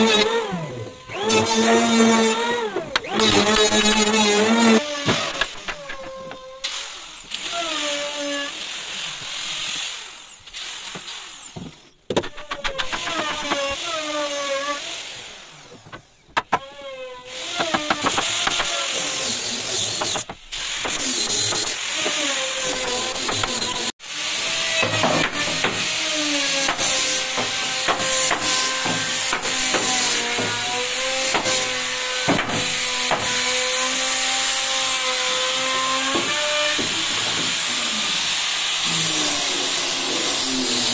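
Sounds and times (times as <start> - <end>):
power sander whining on wood: 21.8 - 40.9.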